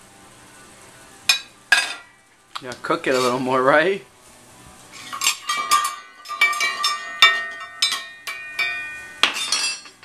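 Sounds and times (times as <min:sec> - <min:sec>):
toy metal pots clinking: 0:05.0 - 0:10.0.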